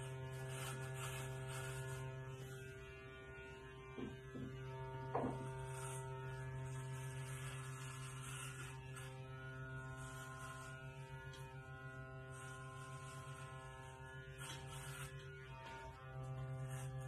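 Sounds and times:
hair clippers buzzing: 0.0s - 17.0s.

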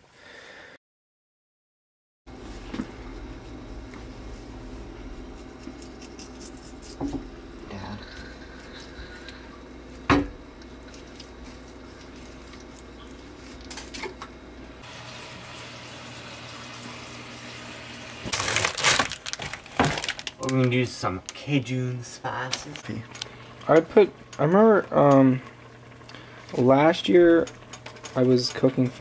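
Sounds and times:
steady low hum: 2.3s - 14.8s
knife scraping on cutting board: 5.3s - 7.3s.

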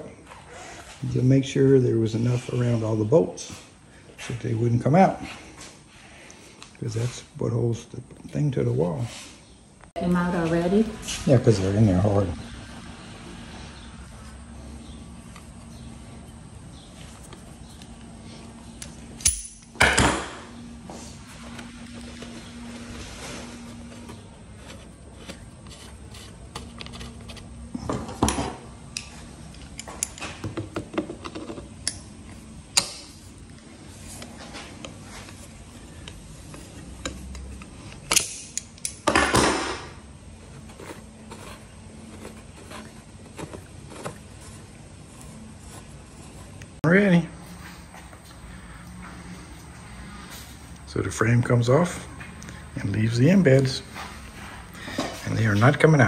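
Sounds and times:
screw grating: 40.6s - 46.8s.

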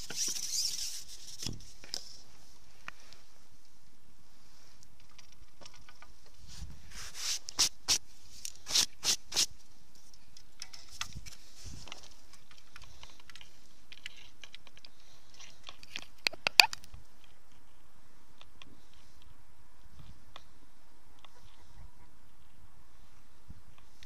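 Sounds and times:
scraping rustles: 0.0s - 3.4s, 4.4s - 16.6s.

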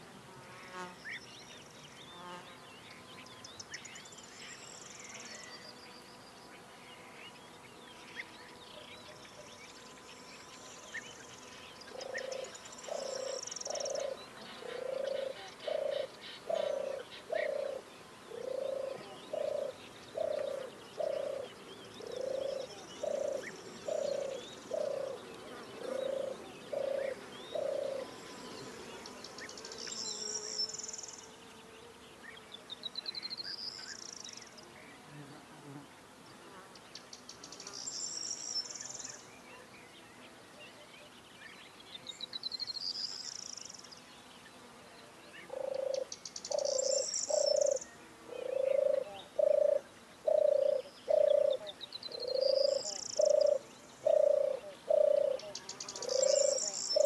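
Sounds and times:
birds chirping and trilling: 1.0s - 35.1s, 36.3s - 57.0s
low repeating bird call: 45.4s - 57.0s.

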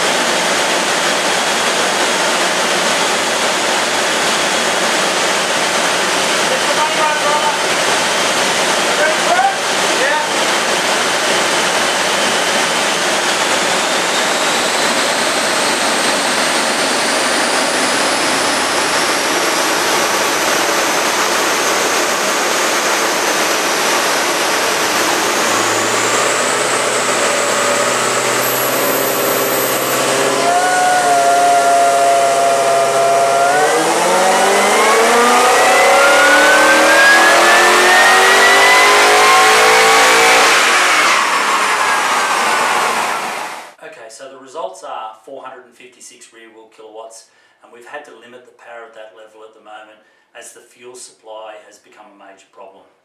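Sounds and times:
car engine on dyno: 0.0s - 43.8s
supercharger whine: 0.0s - 43.8s.

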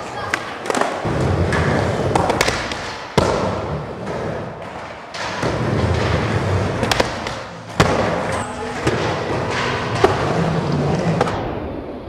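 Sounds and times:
skateboard wheels rolling on wood: 0.0s - 8.3s
skateboard clacking on ramp: 0.2s - 11.4s.

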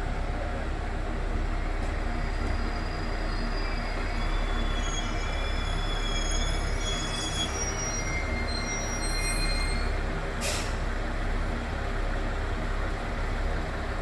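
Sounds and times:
train rumbling: 0.0s - 14.0s
wheel squeal: 2.2s - 10.0s
brake air hiss: 10.4s - 10.9s.

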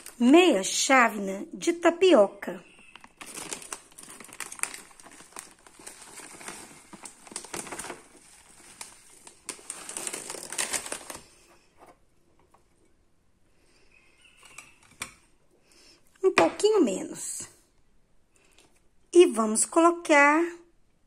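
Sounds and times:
plastic bag crinkling: 0.0s - 0.8s, 2.7s - 12.0s.

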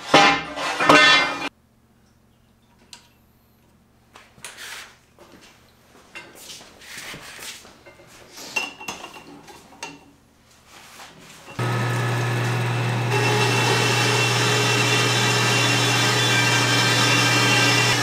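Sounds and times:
metal bar scraping and clanking: 0.0s - 1.5s.

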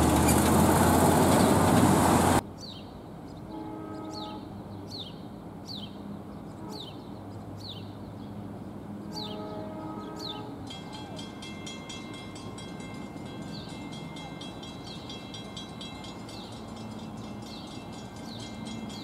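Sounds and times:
bird chirping: 2.6s - 8.4s
distant horn tone: 3.5s - 4.5s, 9.0s - 11.4s
crossing bell ringing: 10.5s - 19.0s.

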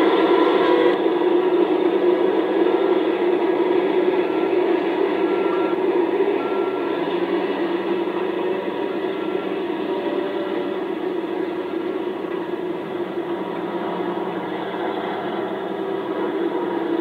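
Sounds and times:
heavy machinery engine drone: 0.0s - 17.0s.

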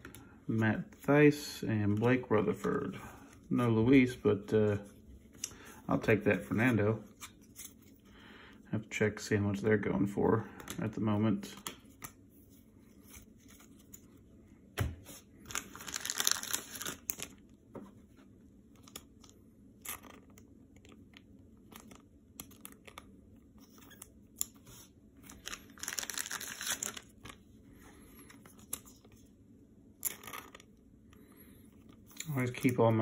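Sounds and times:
plastic crinkling and rustling: 15.4s - 17.4s, 25.2s - 27.5s.

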